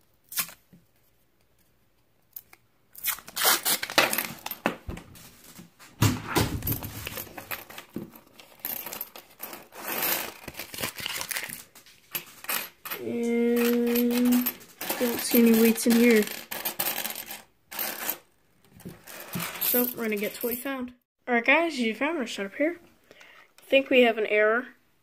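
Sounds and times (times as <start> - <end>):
paper wrapper tearing and crinkling: 3.0 - 4.5, 10.2 - 11.9
coins clinking on wooden table: 6.6 - 10.5, 12.1 - 18.2, 19.0 - 20.7.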